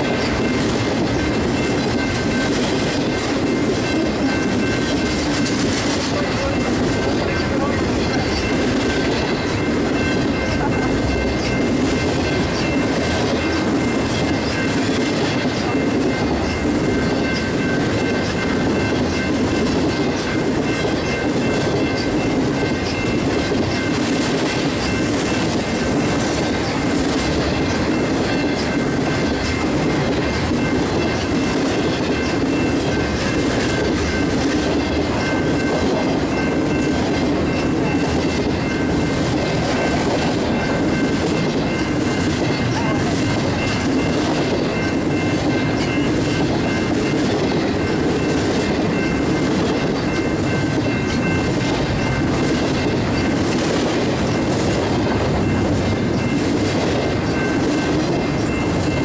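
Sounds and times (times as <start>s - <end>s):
train wheels clacking on rail joints: 0.0s - 59.0s.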